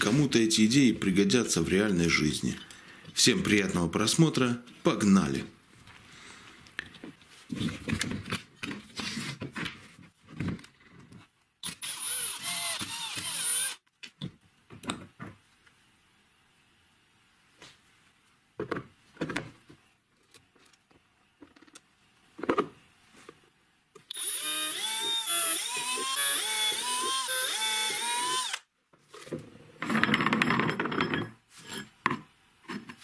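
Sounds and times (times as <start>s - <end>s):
drill boring into plastic: 11.6s - 13.8s, 24.1s - 28.7s
power drill running: 11.6s - 13.8s, 24.1s - 28.7s.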